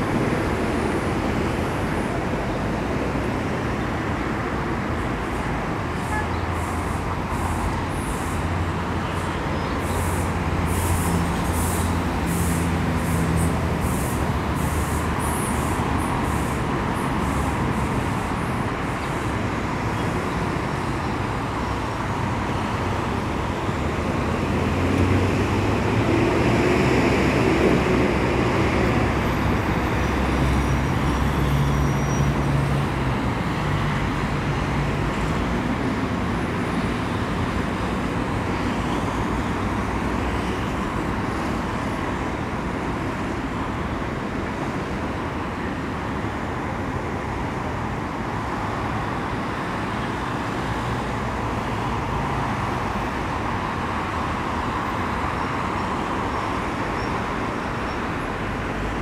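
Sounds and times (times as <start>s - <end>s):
city road traffic: 0.0s - 59.0s
heavy engine passing: 6.0s - 38.5s.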